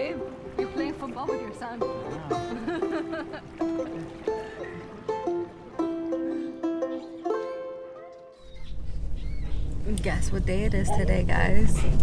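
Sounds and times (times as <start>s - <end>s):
plucked string melody: 0.0s - 8.5s.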